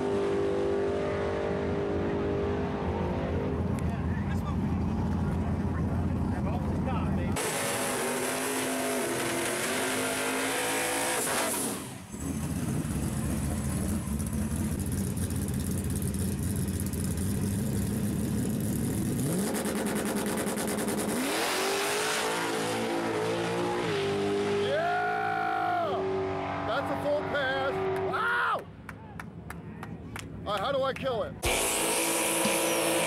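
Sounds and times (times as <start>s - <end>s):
drag car engine revving: 4.4s - 24.7s, 31.4s - 33.0s
engine idle rumble: 12.1s - 19.2s.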